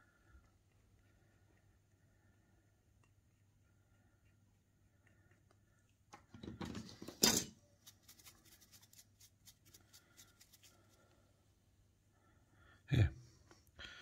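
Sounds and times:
rustling and handling: 0:05.5 - 0:11.5
small brush scratching: 0:07.6 - 0:11.2.

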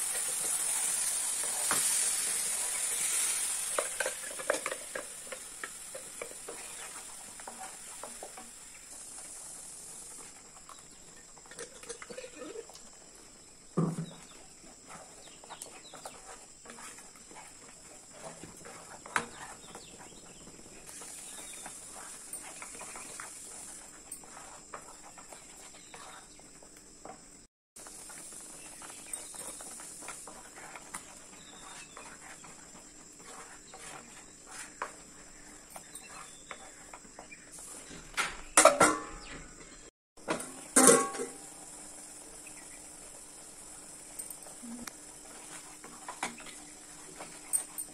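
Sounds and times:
wooden spatula scraping pan: 0:00.0 - 0:09.4, 0:13.8 - 0:27.2, 0:28.6 - 0:38.0.

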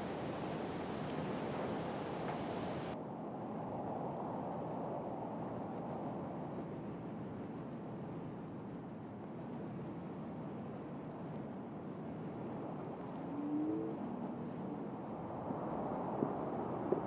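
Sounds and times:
low rumbling noise: 0:00.0 - 0:03.0.

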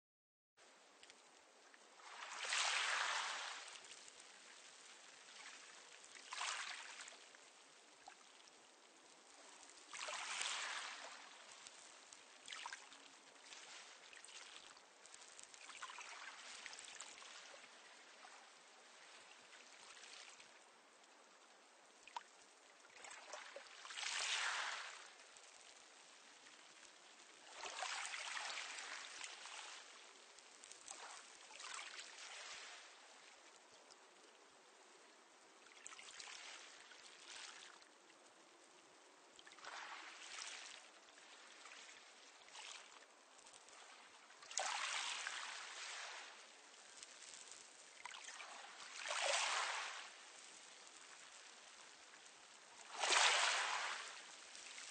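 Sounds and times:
waves washing on pebble beach: 0:02.0 - 0:07.2, 0:09.6 - 0:14.4, 0:23.0 - 0:25.0, 0:44.4 - 0:51.0, 0:52.8 - 0:54.9.

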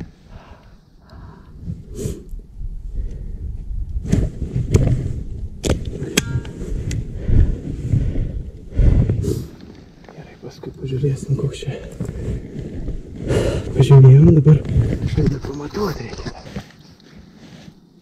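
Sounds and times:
microphone handling rustling: 0:03.5 - 0:08.2, 0:11.6 - 0:17.8.

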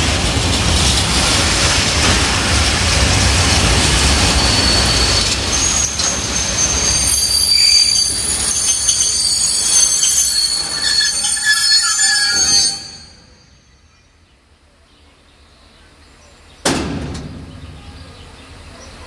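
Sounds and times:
freight wagons rolling on rails: 0:00.0 - 0:13.8
wheels squealing: 0:00.0 - 0:13.9
loud bang: 0:16.6 - 0:18.2.

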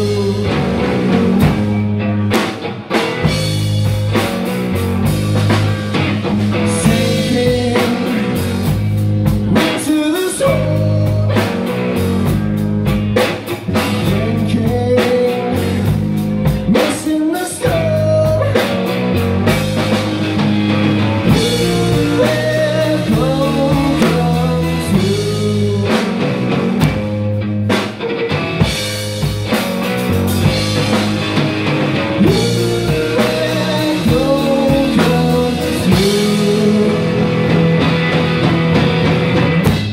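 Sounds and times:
person singing: 0:00.0 - 0:02.4, 0:06.6 - 0:12.4, 0:13.6 - 0:16.0, 0:16.6 - 0:19.0, 0:21.0 - 0:27.0, 0:32.1 - 0:37.8
bass guitar: 0:00.0 - 0:39.9
drum kit: 0:00.0 - 0:39.9
electric guitar: 0:00.0 - 0:39.9.

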